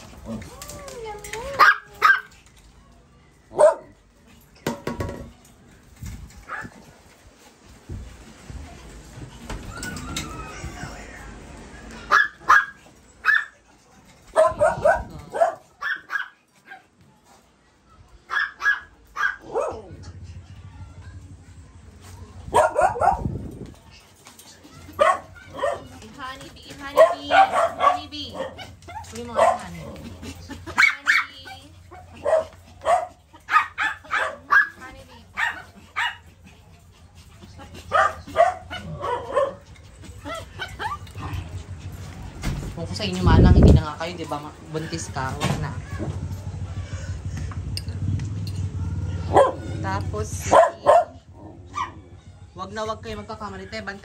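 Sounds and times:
small dogs yipping: 0:00.4 - 0:02.4, 0:06.4 - 0:06.9, 0:09.5 - 0:11.1, 0:12.0 - 0:13.6, 0:14.2 - 0:16.9, 0:18.3 - 0:20.0, 0:22.5 - 0:23.6, 0:24.4 - 0:42.2, 0:48.8 - 0:52.4.

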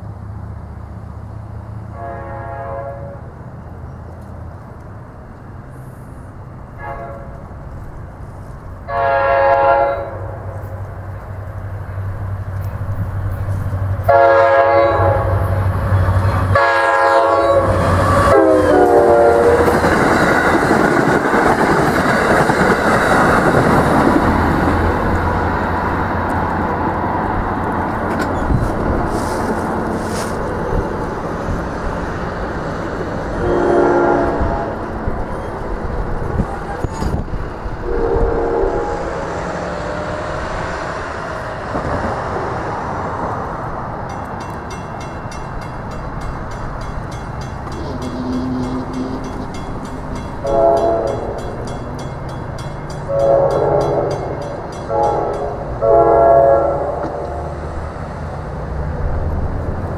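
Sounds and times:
train passing by: 0:00.0 - 0:59.9
train horn blasts: 0:01.9 - 0:03.3, 0:06.8 - 0:07.4, 0:08.9 - 0:10.8, 0:14.0 - 0:15.7, 0:16.5 - 0:19.8, 0:33.4 - 0:35.0, 0:37.8 - 0:39.3, 0:47.8 - 0:49.2, 0:50.4 - 0:51.7, 0:53.0 - 0:57.7.

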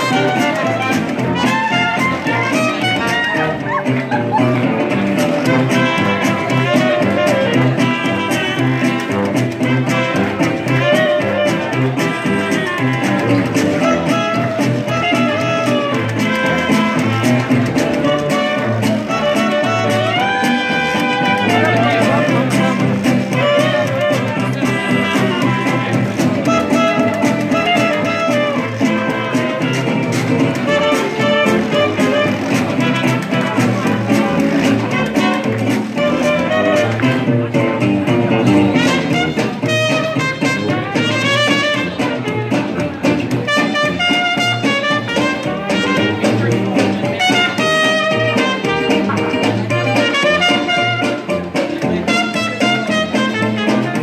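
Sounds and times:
horns playing melody: 0:00.0 - 0:54.0
jazz band playing: 0:00.0 - 0:54.0
sousaphone bass: 0:00.0 - 0:54.0
strummed guitar and banjo: 0:00.0 - 0:54.0.

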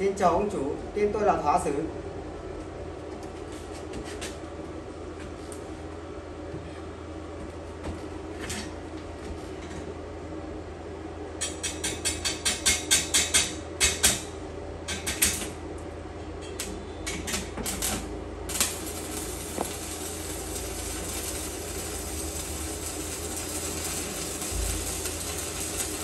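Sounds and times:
arc welding crackling: 0:14.9 - 0:15.7, 0:16.6 - 0:26.0
welding arc crackling hiss: 0:16.6 - 0:26.0.

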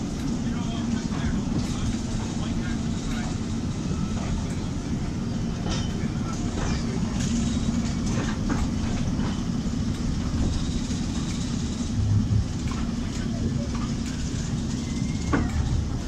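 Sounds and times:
diesel engine hum: 0:00.0 - 0:16.0
train rolling on rails: 0:00.0 - 0:16.0.

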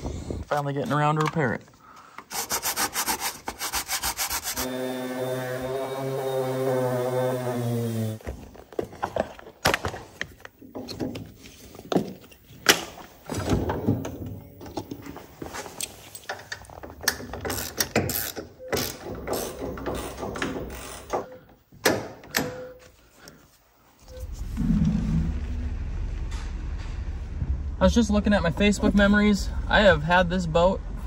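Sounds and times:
power grinder: 0:04.4 - 0:08.2
strap ratcheting rattles: 0:17.0 - 0:21.2.

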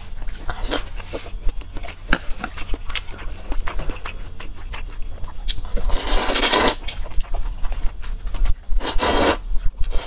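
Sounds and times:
wet chewing clicks: 0:00.1 - 0:10.0
person slurping noodles: 0:05.9 - 0:06.8, 0:08.8 - 0:10.0.

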